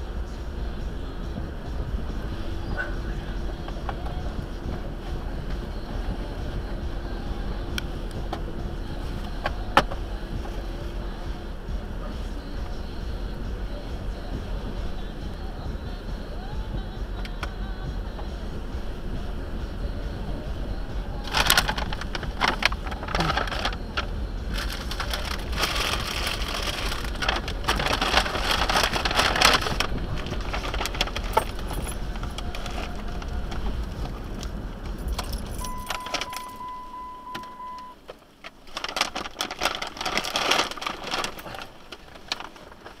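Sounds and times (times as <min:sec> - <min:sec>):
car engine rumble: 0:00.0 - 0:43.0
clattering and jangling: 0:30.5 - 0:32.9, 0:34.9 - 0:36.5
steady beep: 0:35.6 - 0:38.0.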